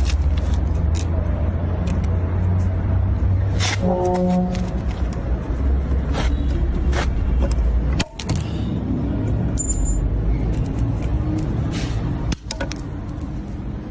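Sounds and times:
pliers clicking and snapping metal: 1.8 - 2.2.

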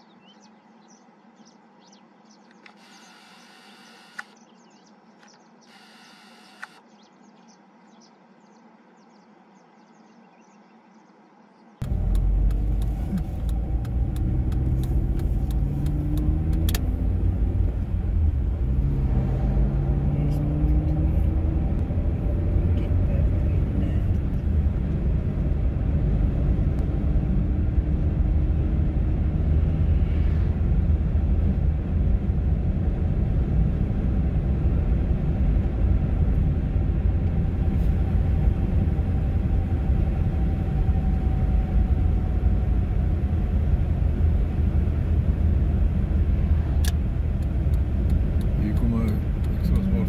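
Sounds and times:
car rumbling at highway speed: 11.8 - 50.0.

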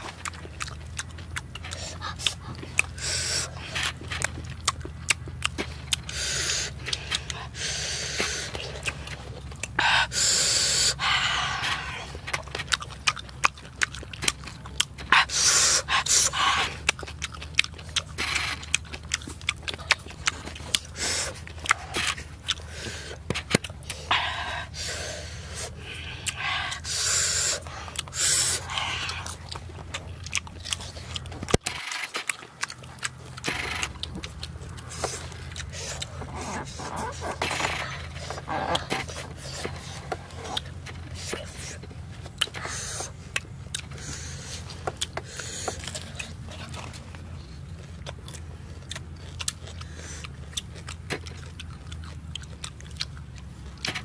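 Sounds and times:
chewing and lip-smacking: 0.0 - 54.0
sharp breaths through mouth: 1.7 - 4.2, 5.6 - 12.4, 15.1 - 16.9, 20.5 - 29.6, 34.5 - 43.3, 43.9 - 46.4.

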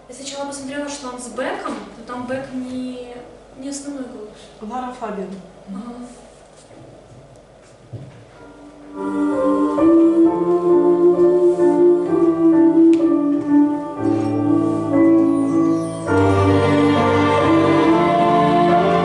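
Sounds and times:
slow sustained chords: 8.5 - 19.0.

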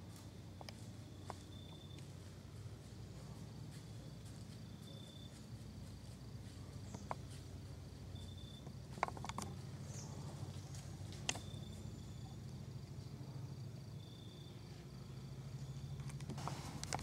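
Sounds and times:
steady low hum: 0.0 - 17.0
sharp snaps and crackles: 16.0 - 17.0.

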